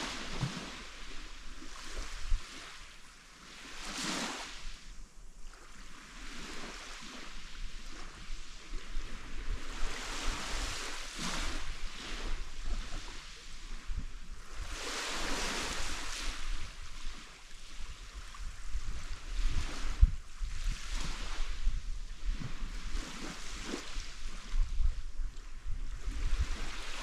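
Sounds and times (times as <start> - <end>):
small waves washing ashore: 0.0 - 27.0
wind buffeting microphone: 7.7 - 27.0.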